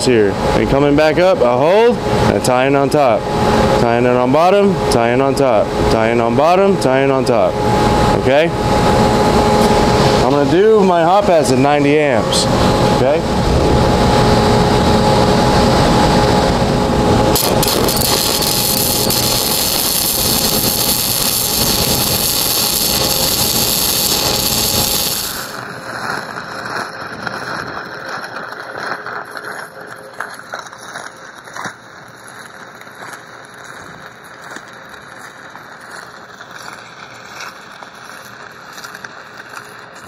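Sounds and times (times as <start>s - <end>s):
welding machine hum: 0.4s - 40.0s
welding arc hissing and crackling: 17.3s - 40.0s.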